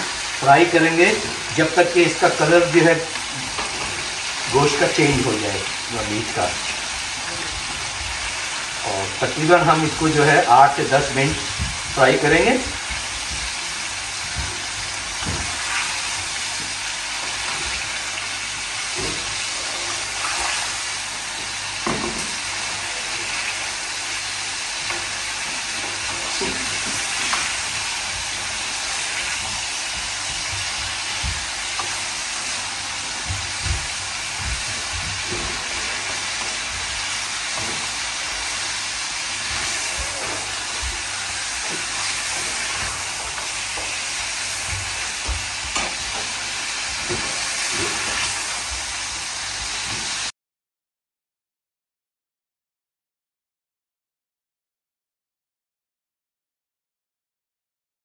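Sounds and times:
meat sizzling in hot oil: 0.0s - 50.3s
stirring knocks: 24.8s - 48.2s.

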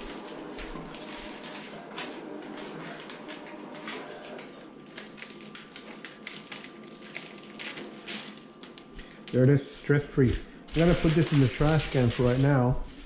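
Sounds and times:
cutting plotter clicking and rustling: 0.0s - 9.5s, 10.2s - 13.0s
film rustling by hand: 0.0s - 13.0s
thin steady whine: 6.1s - 13.0s.

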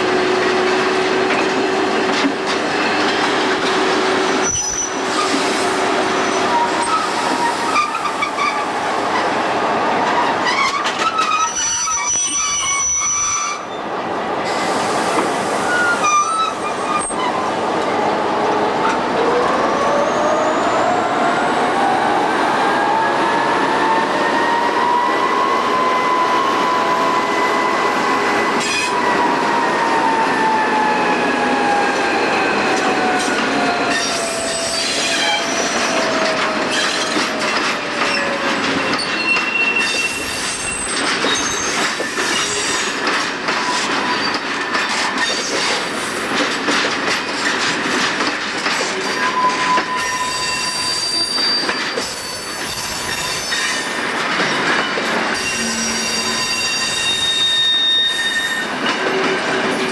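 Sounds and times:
wagon wheels squealing: 10.2s - 13.8s, 38.0s - 42.9s, 55.3s - 59.7s
locomotive high whine: 55.3s - 57.5s.

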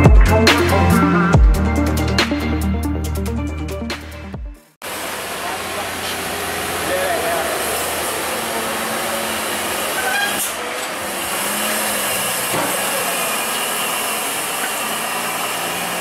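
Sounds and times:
road and air noise: 4.8s - 16.0s
truck diesel engine under load: 4.8s - 16.0s.

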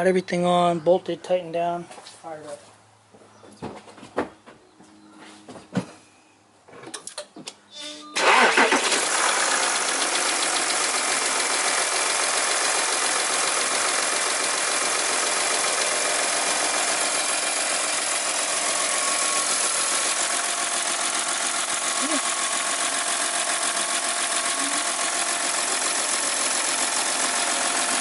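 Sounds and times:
diesel engine starting and idling: 8.2s - 28.0s.

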